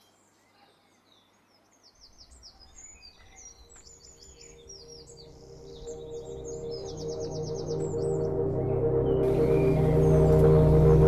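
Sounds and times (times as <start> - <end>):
small birds chirping: 0.0 - 11.0
low rumbling: 4.9 - 11.0.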